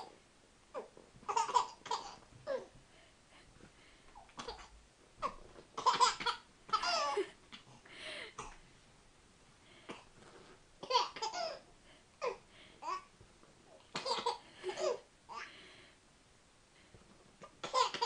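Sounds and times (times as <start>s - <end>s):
baby laughing: 0.8s - 2.7s, 4.4s - 7.4s, 10.8s - 11.6s, 17.6s - 18.0s.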